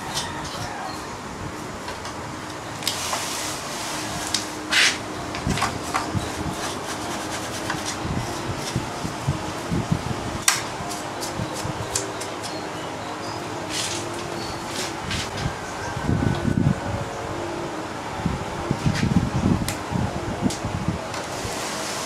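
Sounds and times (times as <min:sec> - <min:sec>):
electric fan running: 0:00.0 - 0:22.0
paintbrush scraping: 0:05.7 - 0:09.3, 0:13.6 - 0:15.4.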